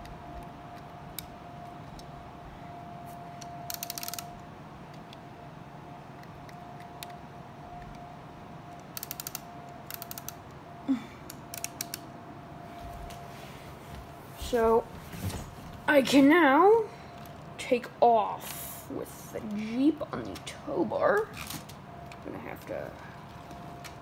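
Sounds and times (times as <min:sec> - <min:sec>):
faint steady hum: 0:00.0 - 0:24.0
plastic gears clicking: 0:03.4 - 0:05.1, 0:08.8 - 0:10.4, 0:11.3 - 0:12.0.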